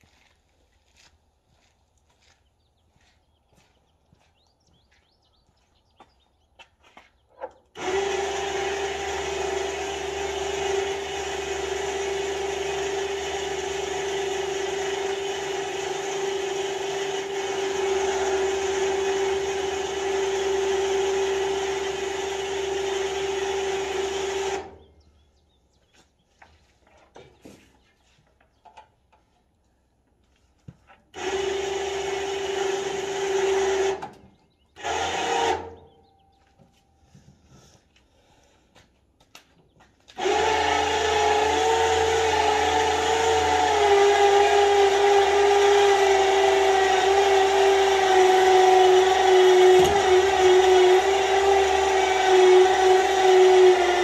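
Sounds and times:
electric winch motor whining: 7.8s - 24.9s, 31.2s - 34.2s, 34.8s - 36.0s, 40.1s - 54.0s.

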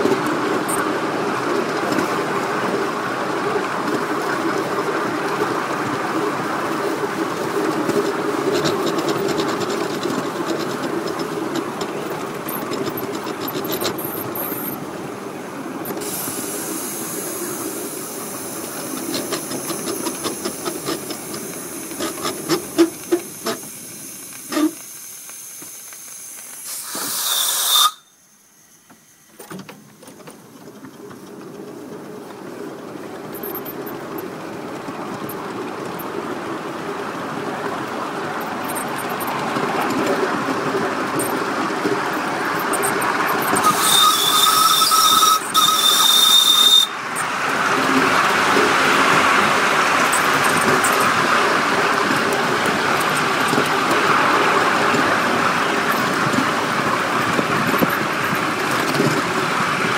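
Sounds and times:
model steam locomotive running: 0.0s - 59.9s
high steam hiss: 14.1s - 29.6s, 40.3s - 59.9s.

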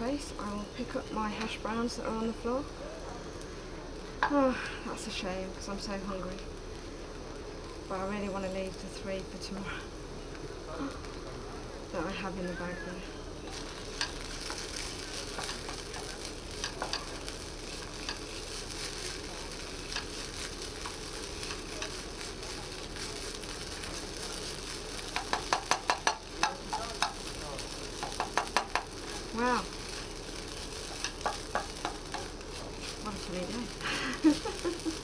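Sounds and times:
hash brown frying in pan: 0.0s - 35.0s
spatula tapping on pan: 15.3s - 17.1s, 25.1s - 27.2s, 28.0s - 28.9s, 30.9s - 32.3s.

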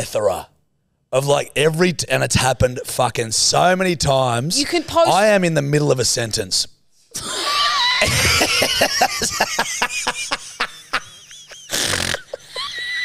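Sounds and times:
man and woman laughing: 7.2s - 13.0s.

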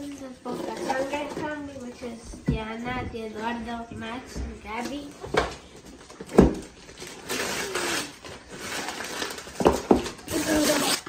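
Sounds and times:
wrapping paper rustling: 5.7s - 11.0s.

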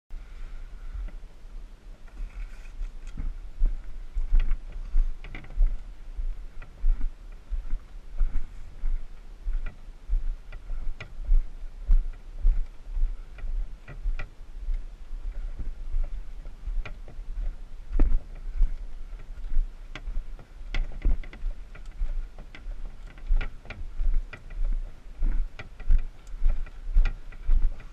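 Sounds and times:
low handling rumble: 0.1s - 27.9s
footsteps on dirt trail: 2.0s - 27.9s
canoe hull clicking and knocking: 16.0s - 24.6s.

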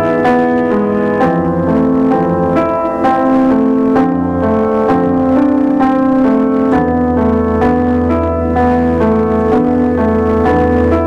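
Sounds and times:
low piano bass notes: 0.0s - 11.0s
piano melody: 0.0s - 11.0s.

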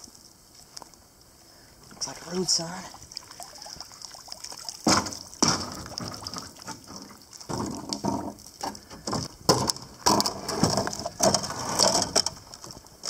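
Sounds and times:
metal post scraping wooden railing: 9.1s - 12.4s.

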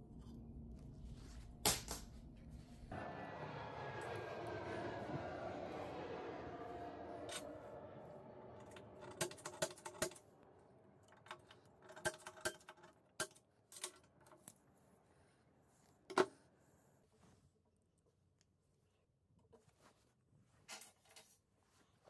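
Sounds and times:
steady mechanical hum: 0.0s - 12.0s.

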